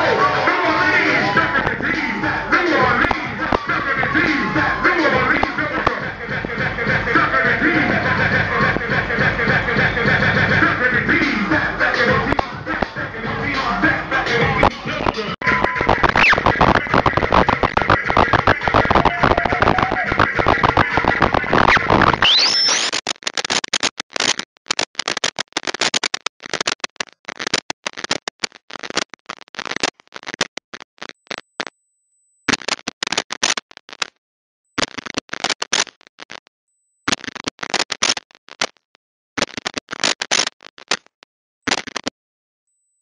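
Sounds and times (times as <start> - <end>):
choppy bursts of harsh noise: 0.0 - 31.7.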